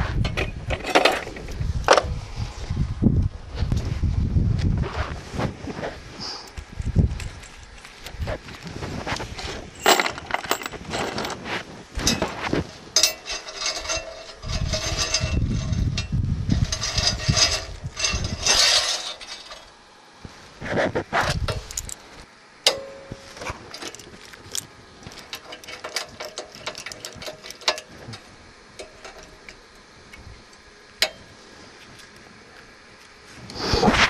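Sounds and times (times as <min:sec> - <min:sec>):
rustling: 0:04.8 - 0:22.2
metal rods clinking on steel plate: 0:09.8 - 0:11.4, 0:13.0 - 0:19.7, 0:22.7 - 0:28.2.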